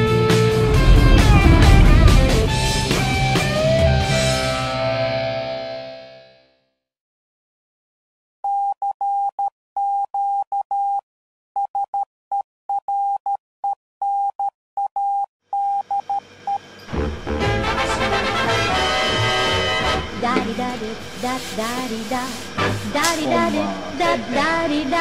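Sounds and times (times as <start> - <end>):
morse code beeps: 11.7 - 16.2
swing band with brass: 17.0 - 20.2.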